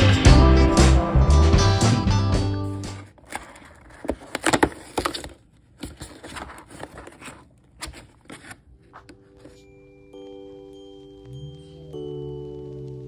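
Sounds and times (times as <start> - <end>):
music: 0.0 - 3.0, 9.5 - 13.0
cardboard tearing and crinkling: 3.1 - 8.7.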